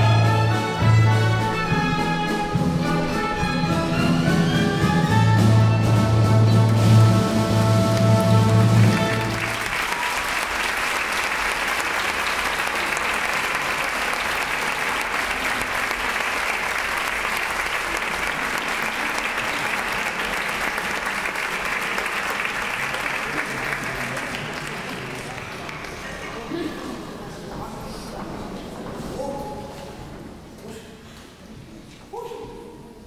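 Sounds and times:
audience applauding: 6.6s - 26.5s.

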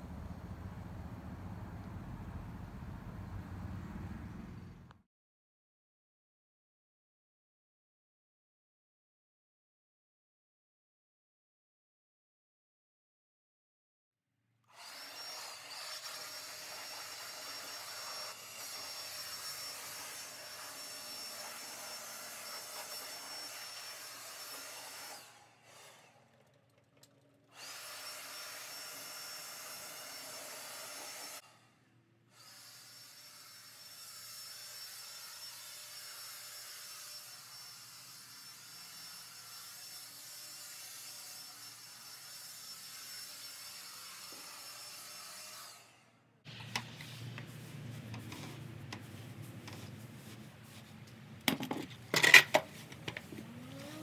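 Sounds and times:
leaf blower whining: 52.8s - 54.0s.

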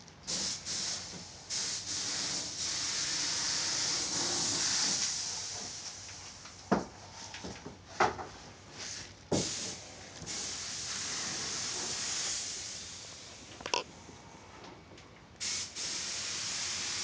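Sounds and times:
spray paint hissing: 0.3s - 6.3s, 8.8s - 13.3s, 15.4s - 17.0s.

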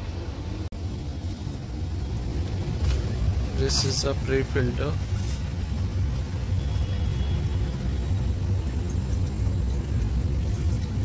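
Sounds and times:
air-handling unit fan rumble: 0.0s - 11.0s.

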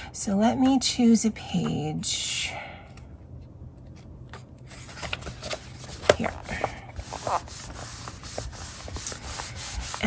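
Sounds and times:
hands rubbing paper pages: 4.7s - 10.0s.

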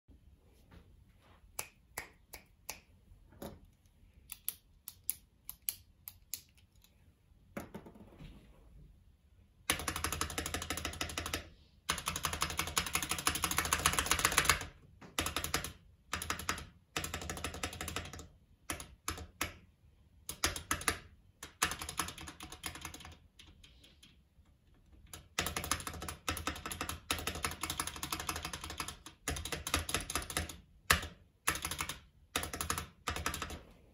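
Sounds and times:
mechanical keyboard typing: 9.7s - 19.6s, 20.2s - 24.2s, 24.8s - 33.6s.

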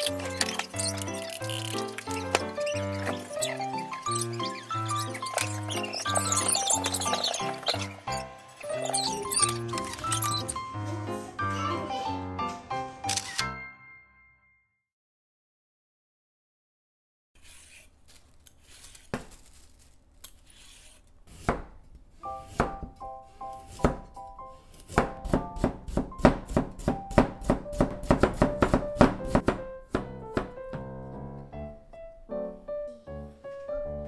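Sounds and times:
vegetable peeler scraping carrot: 0.0s - 10.5s, 17.4s - 21.6s
light piano music: 0.0s - 14.4s, 22.2s - 34.0s
knife chopping carrot on board: 21.3s - 21.8s, 22.4s - 24.1s, 24.8s - 30.6s.

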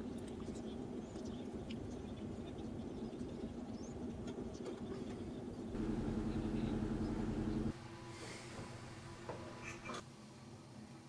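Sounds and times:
steady low hum: 5.7s - 9.6s.

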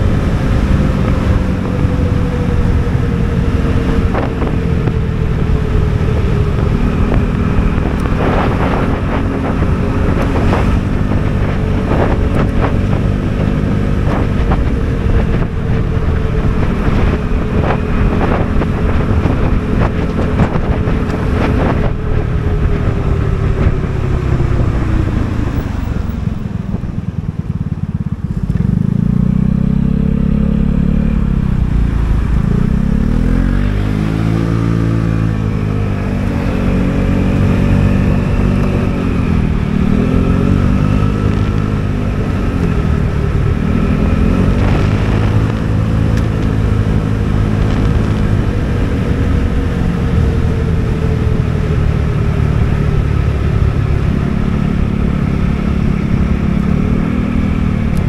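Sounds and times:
scooter engine running: 0.0s - 33.9s.

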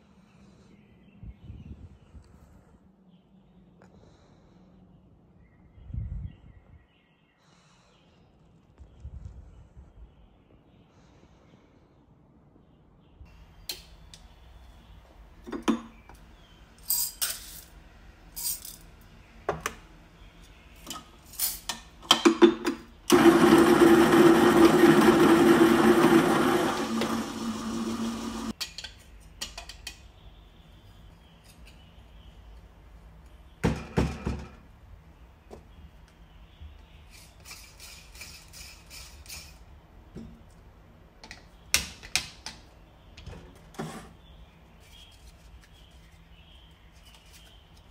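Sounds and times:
metal tools clinking: 16.8s - 17.7s, 18.4s - 18.9s
coffee grinder humming: 23.1s - 28.5s.

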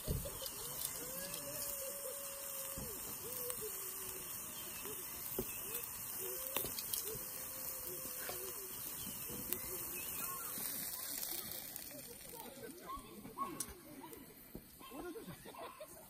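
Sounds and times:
steaks sizzling on a grill: 0.0s - 16.0s.

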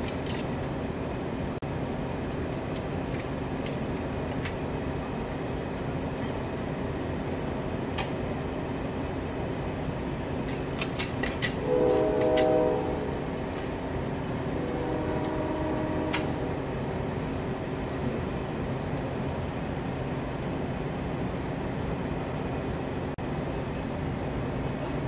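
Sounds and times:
idling train rumble: 0.0s - 25.0s
train horn: 11.6s - 13.9s, 14.5s - 16.8s.

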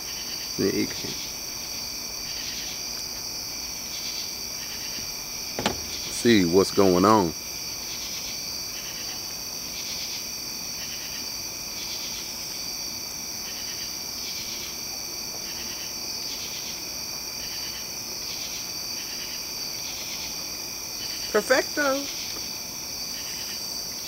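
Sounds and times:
insects trilling: 0.0s - 24.0s
pulsing insect call: 0.0s - 24.0s.

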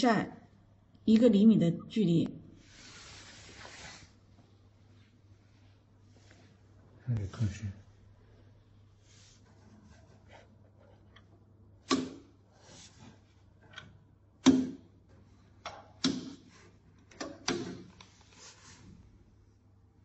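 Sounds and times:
faint steady low hum: 0.0s - 20.0s
sharp clicks and knocks of levers: 15.6s - 18.1s.

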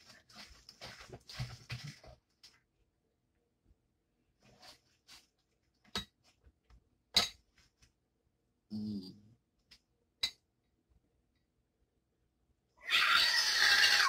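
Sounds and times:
person humming: 8.7s - 9.3s.

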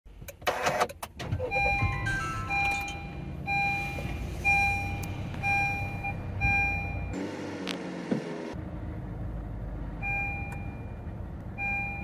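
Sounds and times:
car engine starting and idling: 0.1s - 12.0s
repeating warning beep: 1.4s - 7.2s, 11.6s - 12.0s
falling chime tones: 1.8s - 3.2s.

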